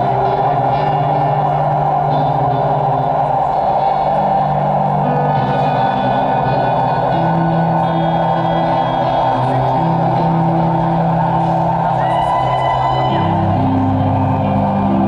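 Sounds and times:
held bass notes: 0:00.0 - 0:15.0
live band with electric guitars: 0:00.0 - 0:15.0
thin high gliding tone: 0:00.0 - 0:15.0.

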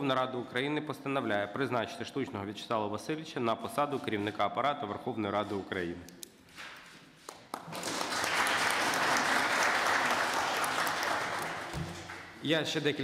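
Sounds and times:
crowd applauding: 0:07.5 - 0:12.4.

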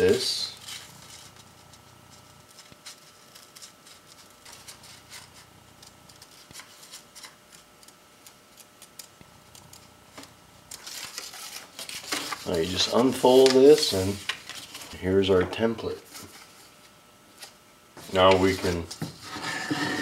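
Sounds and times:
scissors cutting paper bag: 0:00.5 - 0:09.8.

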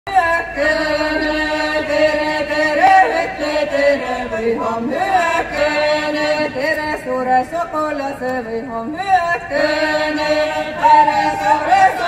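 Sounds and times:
group of voices chanting: 0:09.2 - 0:12.0.

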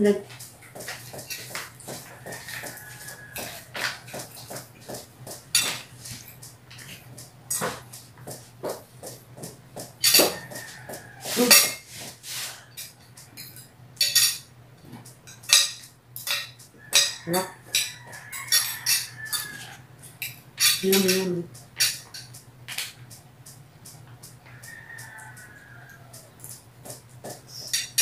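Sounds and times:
cutlery clinking on glass plates: 0:00.8 - 0:07.9, 0:10.0 - 0:12.0, 0:12.8 - 0:14.5, 0:15.3 - 0:22.9, 0:24.6 - 0:28.0.

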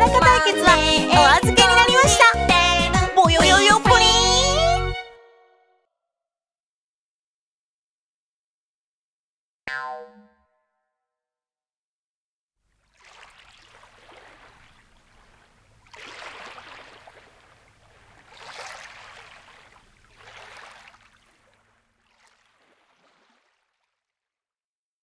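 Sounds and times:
rushing water: 0:12.7 - 0:24.0.

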